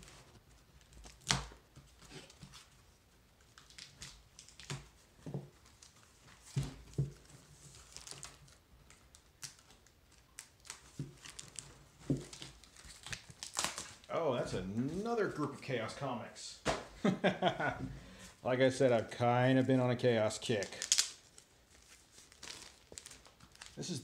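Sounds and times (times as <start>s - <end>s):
cardboard crinkling: 5.6s - 15.6s, 20.5s - 23.9s.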